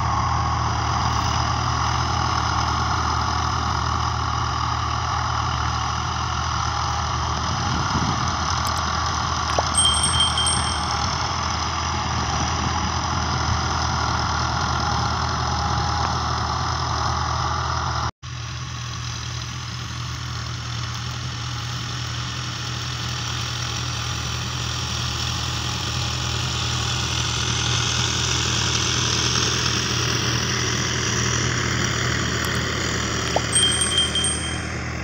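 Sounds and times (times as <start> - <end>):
diesel tractor engine under load: 0.0 - 18.1.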